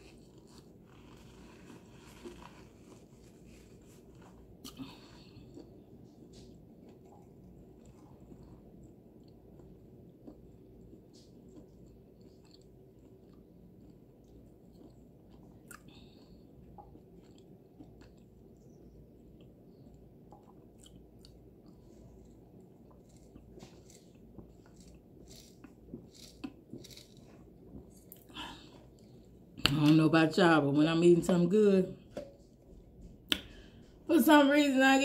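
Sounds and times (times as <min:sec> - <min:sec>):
low room hum: 0:00.0 - 0:35.0
chewing with mouth closed: 0:04.0 - 0:29.5.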